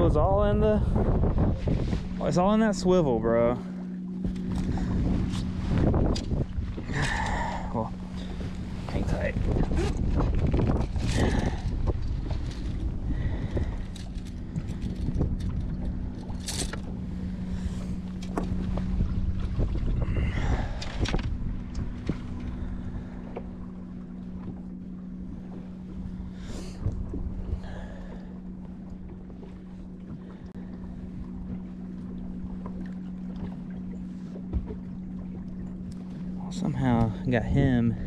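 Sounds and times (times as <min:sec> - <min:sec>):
boat engine hum: 0:00.0 - 0:38.0
wind rumble on microphone: 0:00.0 - 0:38.0
small clicks and rustles: 0:13.5 - 0:16.9.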